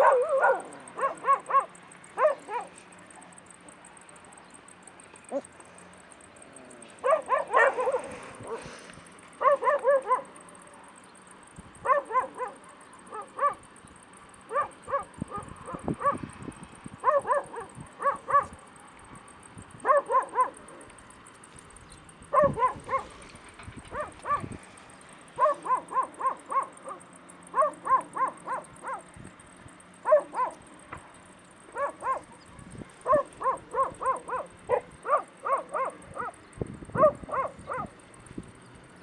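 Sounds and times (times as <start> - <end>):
puppy yelping: 0.0 - 2.7, 7.0 - 8.6, 9.4 - 10.3, 11.9 - 13.6, 22.3 - 23.1, 25.4 - 29.0, 30.1 - 30.6, 31.8 - 32.4, 33.0 - 36.3.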